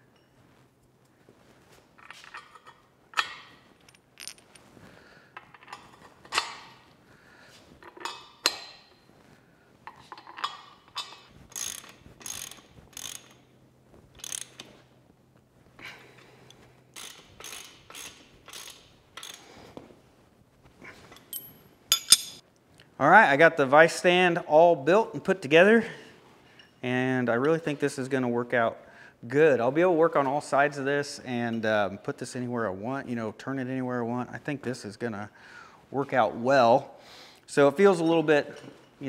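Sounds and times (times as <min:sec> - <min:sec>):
metal tools clinking: 0:02.0 - 0:04.7, 0:07.8 - 0:09.0, 0:09.9 - 0:13.4, 0:21.1 - 0:22.4
socket ratchet clicking: 0:10.4 - 0:13.5, 0:14.2 - 0:14.8, 0:16.9 - 0:19.5.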